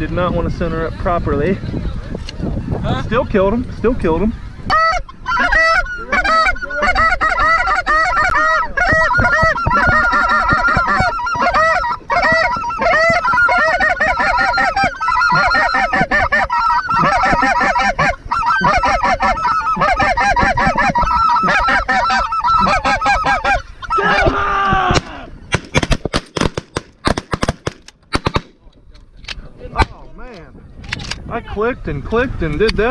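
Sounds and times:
geese honking: 0:04.5 - 0:24.4.

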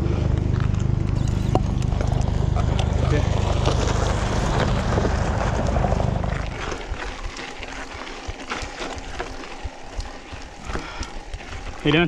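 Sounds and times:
loud low rumble: 0:00.0 - 0:07.0
bike tyres crunching on dirt: 0:00.0 - 0:12.0.

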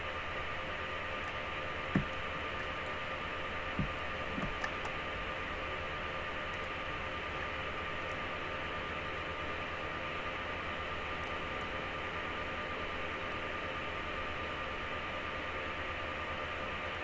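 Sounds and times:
faint hum: 0:00.0 - 0:17.0
soft low thumps: 0:01.9 - 0:02.2, 0:03.8 - 0:04.6.

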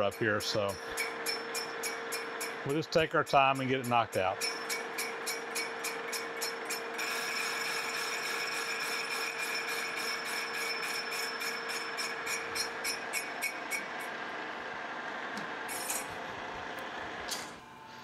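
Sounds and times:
cutter ticking on casting: 0:00.0 - 0:14.2
metal lathe cutting: 0:00.0 - 0:16.3.

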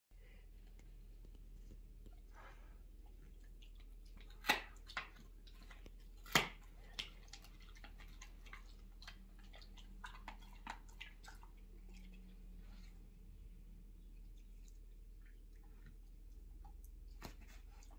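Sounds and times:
dog chewing bone: 0:03.1 - 0:12.5.

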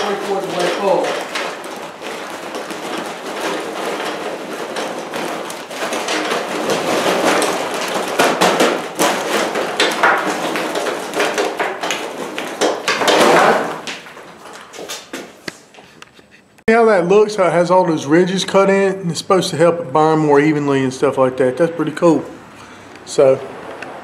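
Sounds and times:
charcoal briquettes clattering into metal: 0:00.0 - 0:15.4.

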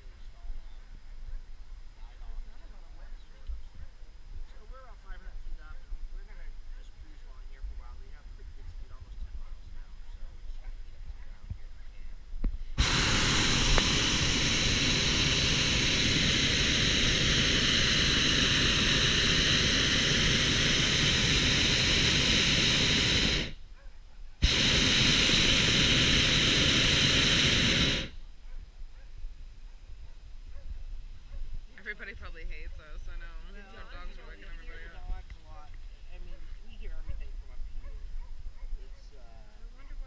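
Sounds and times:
propane burner blast: 0:12.4 - 0:23.6, 0:24.4 - 0:28.3, 0:31.4 - 0:35.3.

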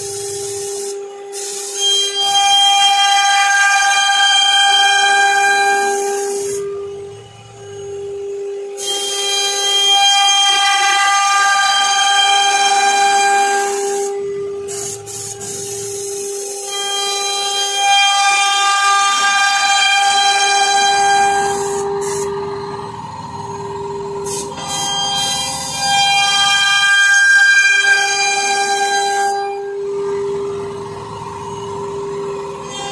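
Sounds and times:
compressed air hissing: 0:00.0 - 0:01.8, 0:06.1 - 0:06.6, 0:14.7 - 0:16.6, 0:21.4 - 0:22.3, 0:24.2 - 0:25.6
router spindle whining: 0:00.0 - 0:32.9.

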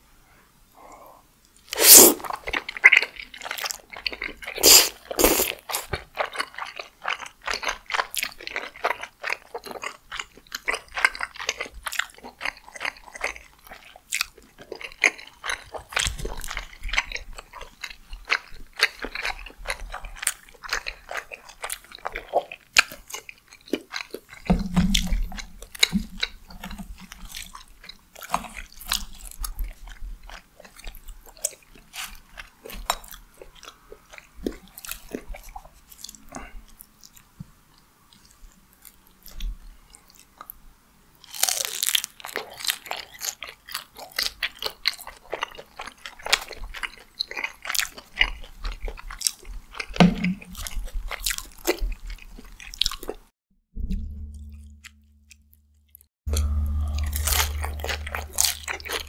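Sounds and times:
wet chewing mouth clicks: 0:01.6 - 0:37.2
dull low bumps: 0:24.5 - 0:27.2, 0:53.7 - 0:59.0.

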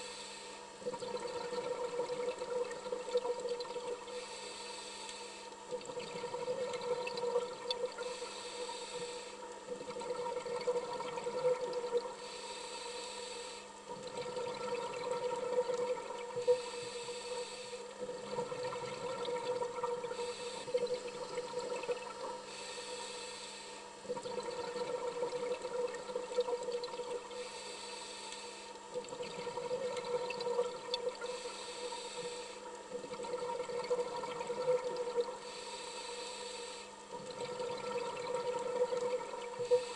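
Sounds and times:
scuba regulator breathing: 0:00.0 - 0:00.7, 0:04.1 - 0:05.5, 0:07.9 - 0:09.5, 0:12.2 - 0:13.7, 0:16.4 - 0:18.0, 0:20.1 - 0:20.9, 0:22.4 - 0:23.9, 0:27.3 - 0:28.8, 0:31.2 - 0:32.7, 0:35.4 - 0:37.0, 0:39.6 - 0:39.9
exhaled bubbles hissing: 0:00.0 - 0:39.9
steady hum: 0:00.0 - 0:39.9.

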